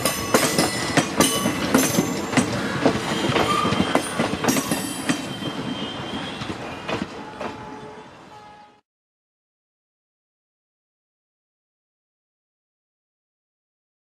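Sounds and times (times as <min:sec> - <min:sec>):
train wheels clattering over joints: 0:00.0 - 0:07.7
wheels squealing: 0:01.3 - 0:08.1.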